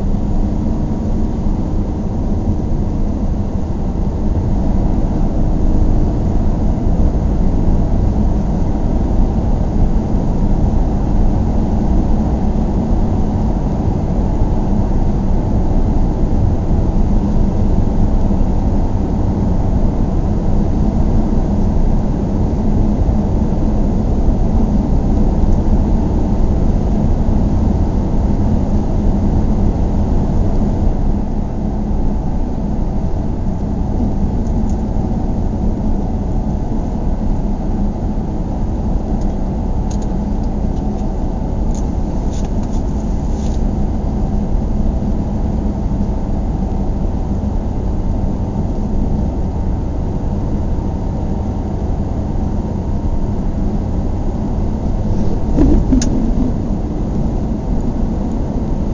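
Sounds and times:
car interior road rumble: 0:20.6 - 0:45.8, 0:54.4 - 0:58.9.

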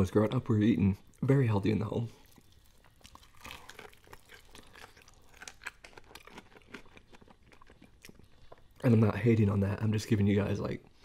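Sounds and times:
faint chewing crunches: 0:02.0 - 0:09.0.

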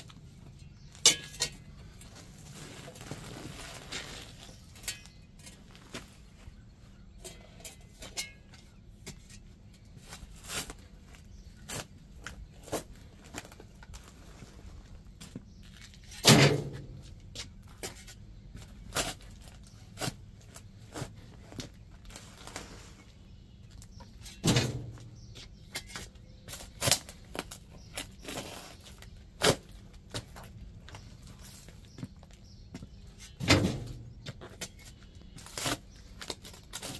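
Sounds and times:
shovel scraping soil: 0:01.0 - 0:05.6
heavy shovel thuds: 0:16.1 - 0:17.2, 0:24.2 - 0:25.4, 0:33.3 - 0:34.4.

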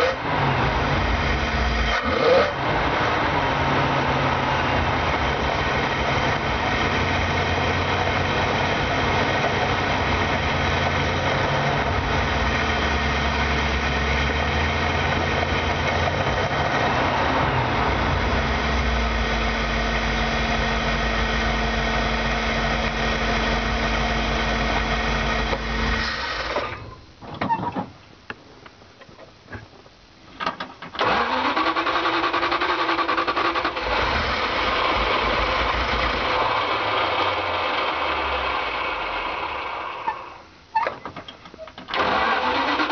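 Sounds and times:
van engine running: 0:00.0 - 0:27.2, 0:31.0 - 0:42.9.

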